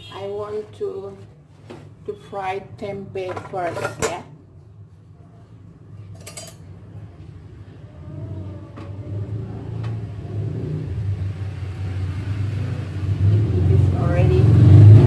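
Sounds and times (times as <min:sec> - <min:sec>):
kitchen utensils clicking: 0:03.2 - 0:04.3, 0:06.1 - 0:06.7.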